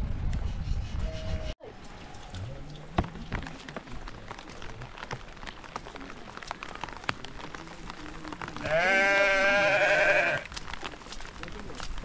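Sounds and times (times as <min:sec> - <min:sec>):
rain pattering: 0:01.7 - 0:12.0
sheep bleating: 0:08.6 - 0:10.5.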